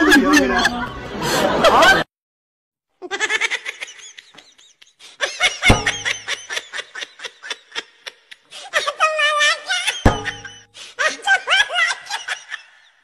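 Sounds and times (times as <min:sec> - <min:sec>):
dull thud: 0:05.7 - 0:06.4, 0:10.0 - 0:10.6.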